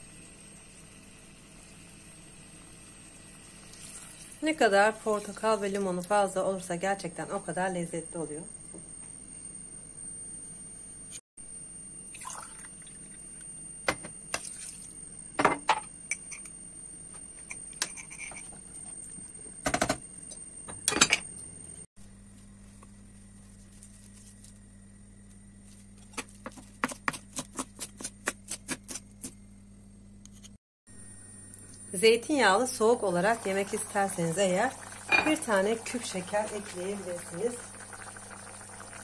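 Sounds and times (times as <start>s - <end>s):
liquid pouring into a pot: 12.1s - 13.2s, 33.3s - 39.0s
cookware knocks and clinks: 15.4s - 16.4s, 35.1s - 35.4s.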